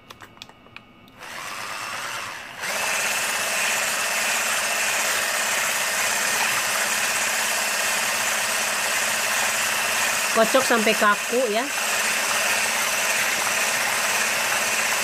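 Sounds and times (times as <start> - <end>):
electric hand mixer whipping: 1.2 - 15.0.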